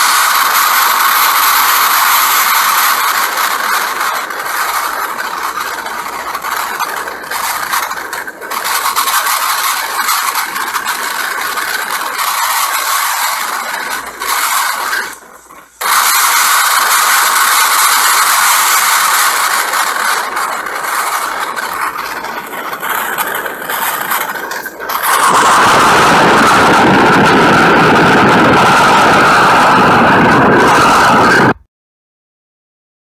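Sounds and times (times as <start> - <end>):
hurricane wind and driving rain: 11.6 - 24.3, 24.9 - 31.6.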